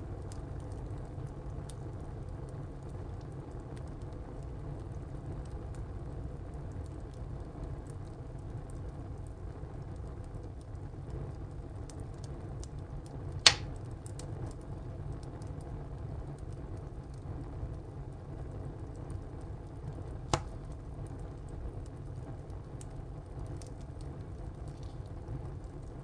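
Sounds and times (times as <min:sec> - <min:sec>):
fire flames burning: 0:00.0 - 0:26.0
burning wood popping: 0:10.5 - 0:15.7, 0:16.4 - 0:26.0.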